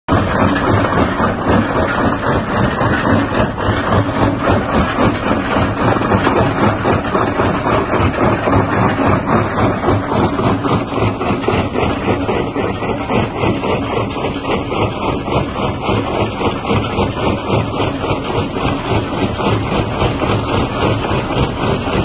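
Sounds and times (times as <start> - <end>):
machine hum: 0.1 - 22.0.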